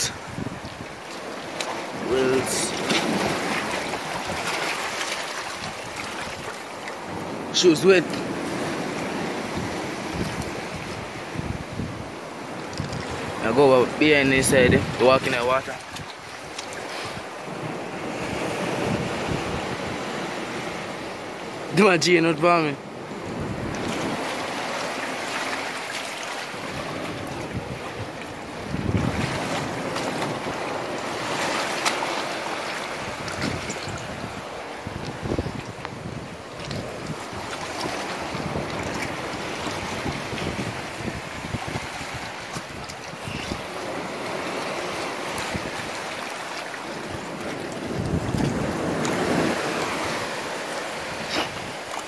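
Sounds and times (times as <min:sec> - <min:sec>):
wind buffeting microphone: 0:00.0 - 0:01.1, 0:08.1 - 0:16.4, 0:17.0 - 0:21.0, 0:22.9 - 0:24.8, 0:26.5 - 0:31.6, 0:32.9 - 0:46.0, 0:46.8 - 0:51.9
shallow seawater sloshing and splashing: 0:00.0 - 0:21.9, 0:22.7 - 0:52.0.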